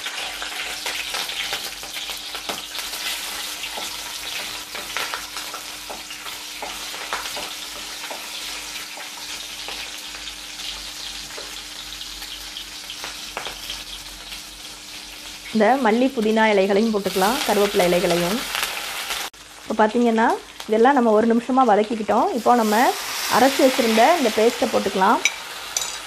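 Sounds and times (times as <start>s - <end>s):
chillies sizzling in hot oil: 0.0s - 26.0s
spatula scraping and tapping pan: 3.4s - 9.8s.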